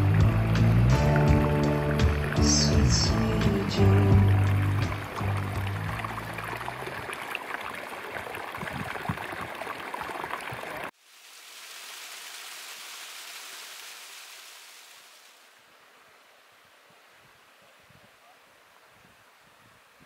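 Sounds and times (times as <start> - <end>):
background music: 0.0 - 6.8
water cascade rushing over rock: 0.0 - 15.9.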